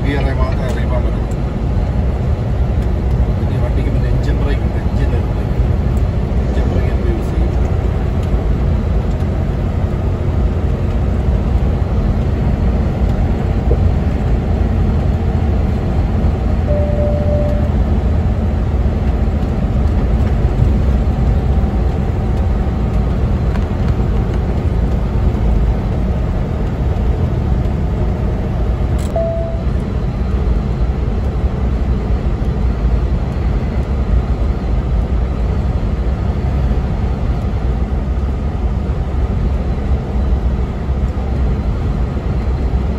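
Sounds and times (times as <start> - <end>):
diesel engine droning: 0.0 - 42.9
tyre and road noise: 0.0 - 42.9
short beeps: 16.7 - 17.8, 29.1 - 29.8.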